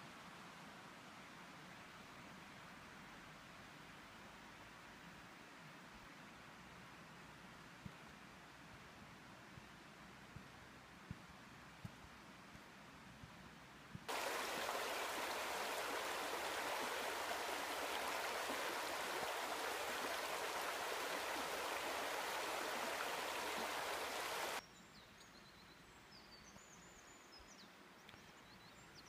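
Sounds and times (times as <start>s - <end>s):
stream water rushing: 14.1s - 24.6s.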